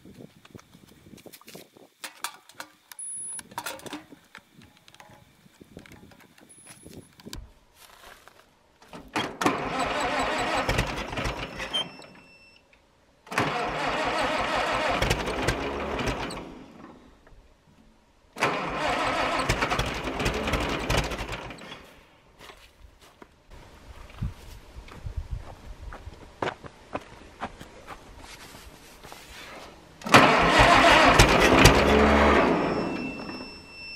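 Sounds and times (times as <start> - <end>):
electric starter cranking engine: 9.4 - 11.9, 13.3 - 16.8, 18.4 - 21.9, 30.0 - 33.2.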